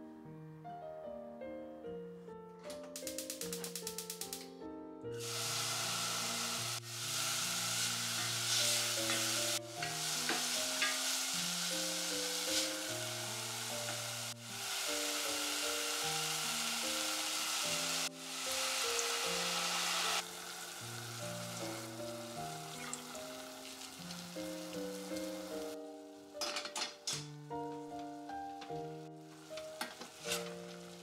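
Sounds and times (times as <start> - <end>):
soft piano music: 0.0 - 31.0
vegetables sizzling in a pot: 5.2 - 26.6, 27.8 - 31.0.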